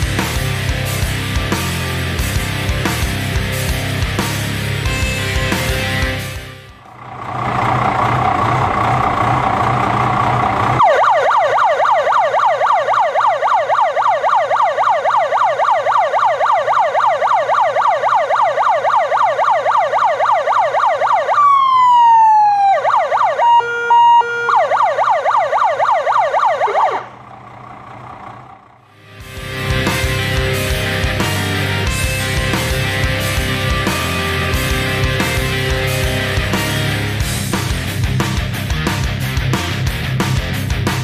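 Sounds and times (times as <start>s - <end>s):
siren steady tones: 5.3s - 37.3s
siren yelping: 6.9s - 27.3s.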